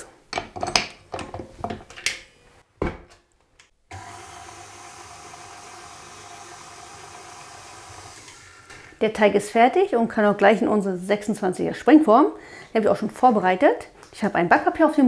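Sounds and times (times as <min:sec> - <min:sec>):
stand mixer motor hum: 0:03.9 - 0:08.9.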